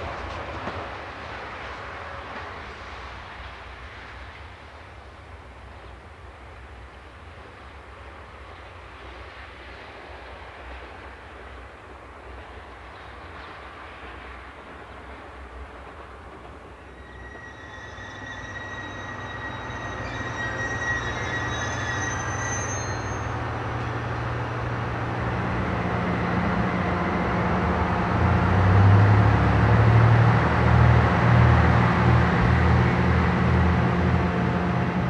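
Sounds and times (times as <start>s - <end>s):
diesel locomotive engine: 0.0s - 35.0s
diesel train approaching: 0.0s - 35.0s
wheel squeal: 16.8s - 23.4s.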